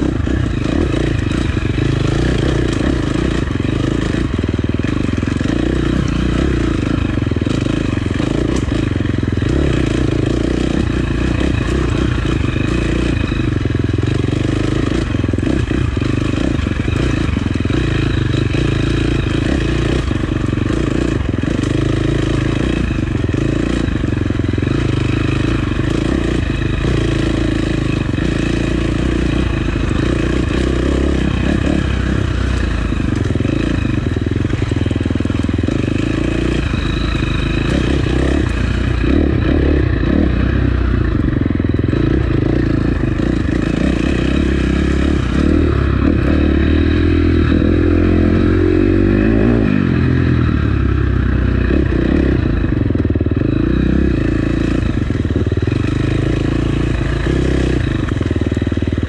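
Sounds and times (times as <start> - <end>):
bike rattling and clattering: 0.0 - 48.2
dirt bike engine revving: 0.0 - 59.0.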